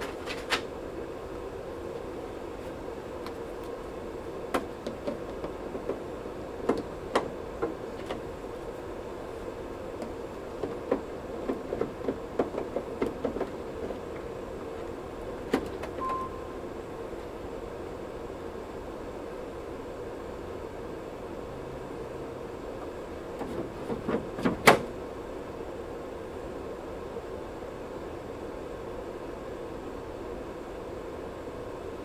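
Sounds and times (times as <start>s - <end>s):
printer hum: 0.0s - 32.0s
short beep: 16.0s - 16.6s.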